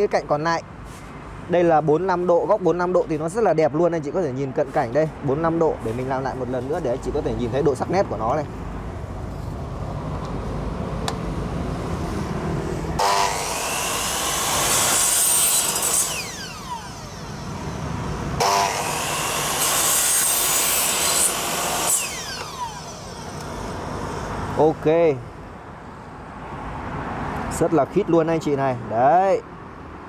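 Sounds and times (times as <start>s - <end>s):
miter saw cutting plastic: 13.0s - 24.3s.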